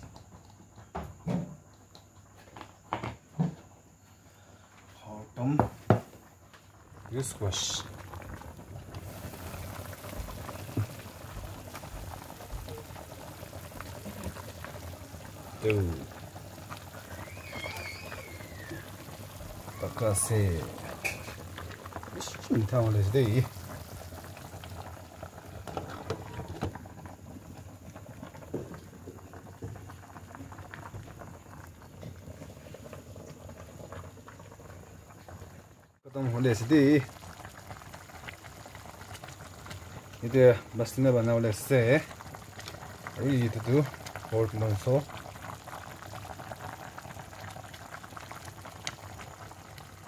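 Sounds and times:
pot boiling and bubbling: 0:00.0 - 0:50.0.

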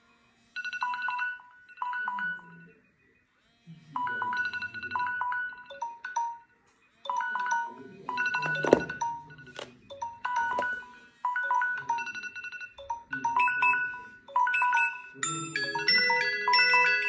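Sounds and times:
phone alarm melodies: 0:00.6 - 0:02.8, 0:04.0 - 0:17.0
chime-like alarm tone: 0:07.0 - 0:09.5, 0:10.1 - 0:17.0.

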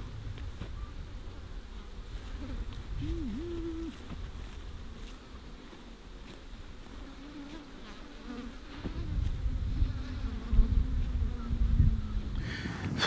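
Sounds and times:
low rumble: 0:00.0 - 0:01.7
bees buzzing: 0:00.0 - 0:13.0.

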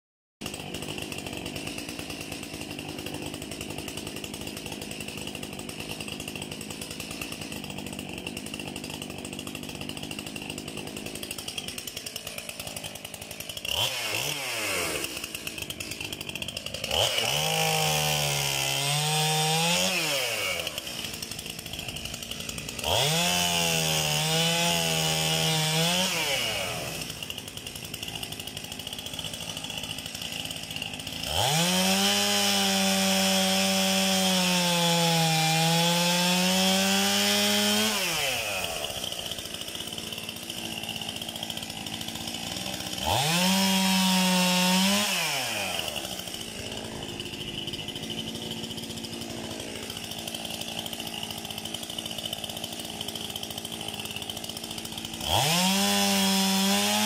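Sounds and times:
chainsaw idling and revving: 0:00.4 - 0:57.0.

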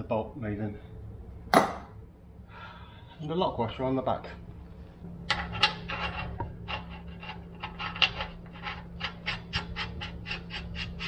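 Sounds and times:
steady low hum: 0:00.0 - 0:11.0
metal-on-metal rasping: 0:05.3 - 0:11.0.

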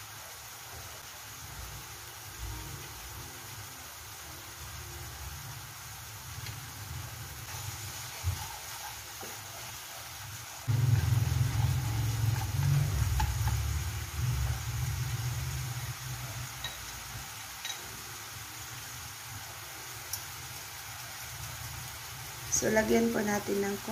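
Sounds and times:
vegetables sizzling in oil: 0:00.0 - 0:23.9
low rumble: 0:10.7 - 0:16.5.

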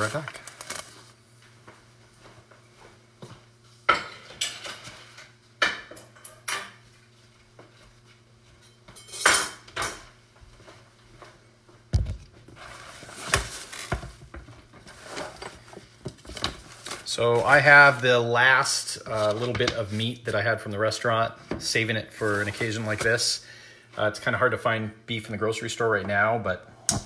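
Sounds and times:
dishes and cutlery clinking: 0:08.6 - 0:10.1.

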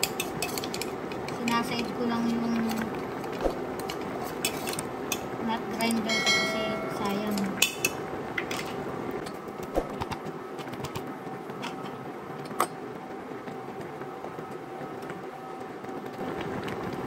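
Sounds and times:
spatula stirring broth: 0:00.0 - 0:01.6, 0:02.7 - 0:05.4
broth boiling and bubbling: 0:00.0 - 0:17.0.

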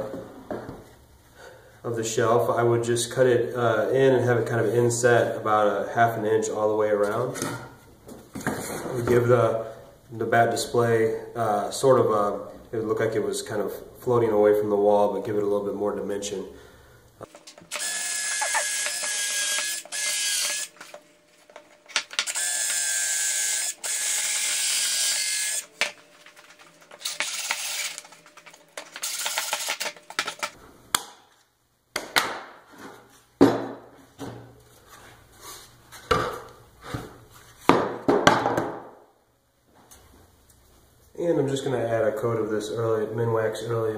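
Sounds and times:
power tool cutting wood whine: 0:17.7 - 0:20.8
wooden boards knocking and clattering: 0:33.4 - 0:34.5, 0:37.7 - 0:38.9.

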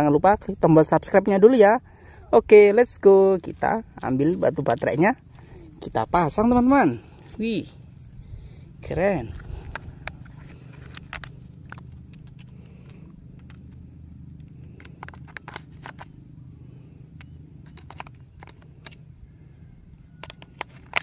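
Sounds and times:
steady low hum: 0:00.0 - 0:21.0
plastic clicks and scrapes: 0:09.3 - 0:16.2, 0:17.2 - 0:19.0, 0:20.2 - 0:21.0.

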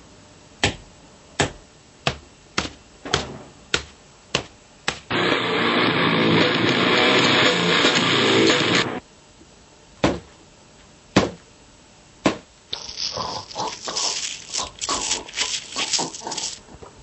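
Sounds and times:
loud guitar music: 0:05.1 - 0:09.0.

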